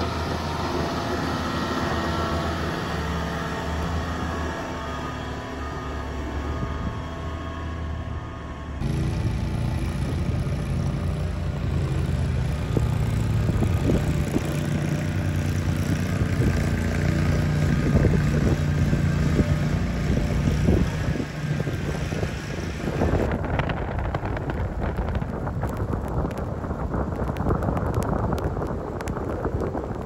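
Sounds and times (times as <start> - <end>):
snow blower engine running: 0.0 - 23.4.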